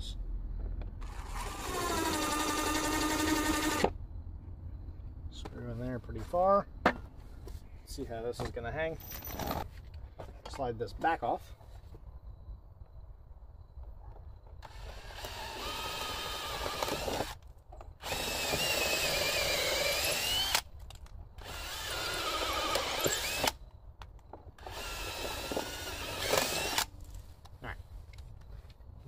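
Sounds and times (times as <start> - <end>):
cordless drill boring: 1.0 - 3.9, 14.6 - 17.4, 18.0 - 20.6, 21.4 - 23.6, 24.6 - 26.9.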